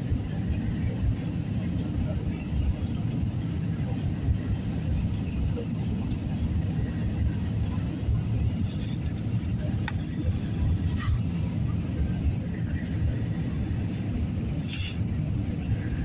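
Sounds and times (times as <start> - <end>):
airliner cabin engine rumble: 0.0 - 16.0.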